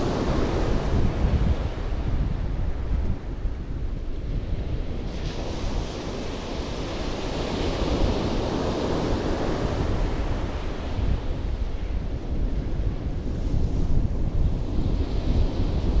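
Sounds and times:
wind rumbling on microphone: 0:00.0 - 0:16.0
sea waves breaking: 0:05.0 - 0:11.5.

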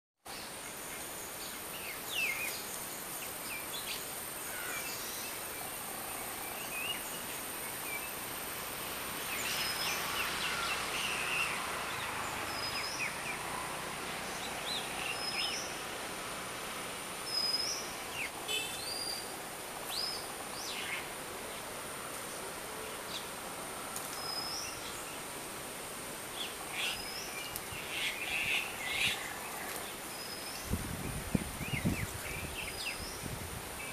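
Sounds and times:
bird calls and chirps: 0:14.2 - 0:15.8.

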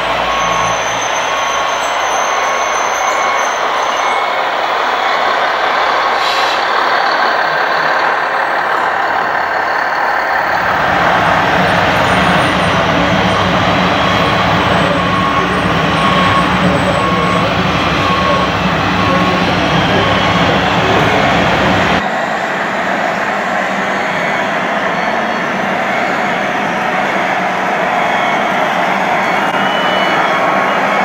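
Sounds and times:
deep rumble: 0:10.4 - 0:22.0.

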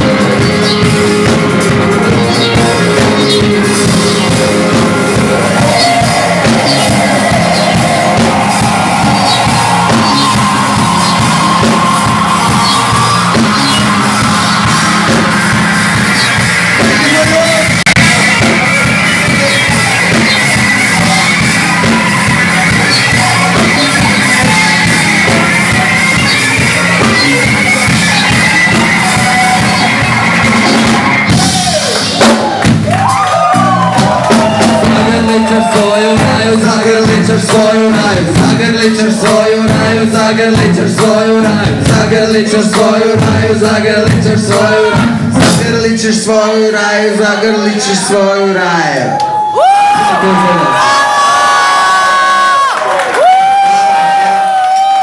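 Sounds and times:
electric guitars: 0:00.0 - 0:46.0
drum kit: 0:00.0 - 0:46.5
bass guitar: 0:00.0 - 0:51.7
shouted vocals: 0:02.5 - 0:32.2, 0:32.9 - 0:38.4, 0:46.6 - 0:55.0.

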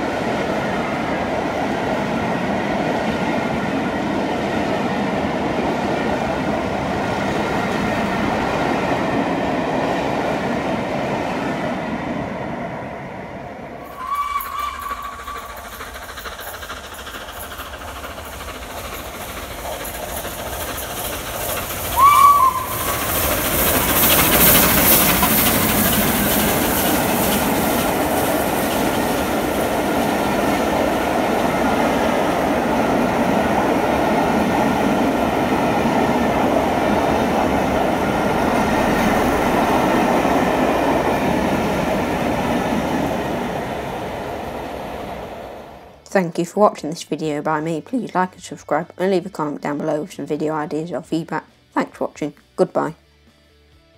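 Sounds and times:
train rushing on rails: 0:00.0 - 0:53.4
steam locomotive whistle: 0:13.8 - 0:15.6, 0:21.8 - 0:26.7.

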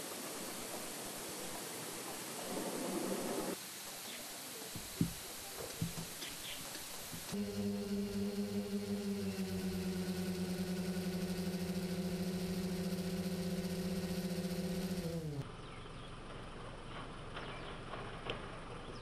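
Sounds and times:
faint outdoor noise: 0:00.0 - 0:19.0
drone motors humming: 0:07.2 - 0:15.4.

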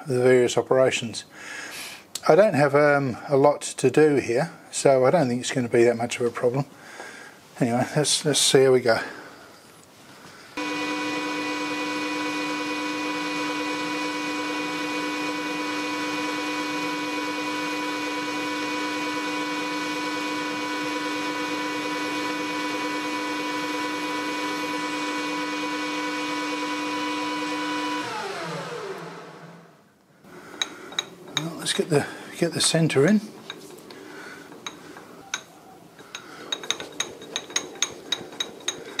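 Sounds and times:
metal lathe whining: 0:10.6 - 0:29.8, 0:36.1 - 0:39.0.

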